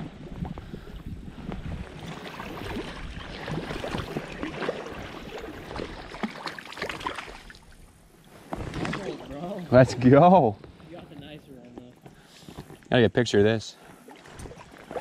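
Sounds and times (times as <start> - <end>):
water splashing from wading: 1.8 - 9.7, 13.9 - 15.0.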